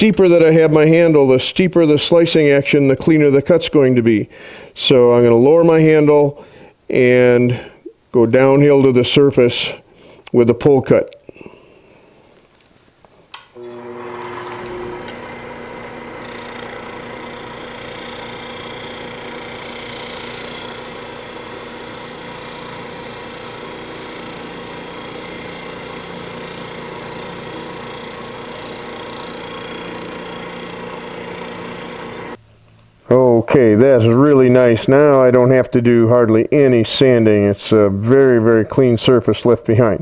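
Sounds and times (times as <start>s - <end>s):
gouge cutting wood: 13.6s - 32.4s
lathe motor hum: 13.6s - 32.4s.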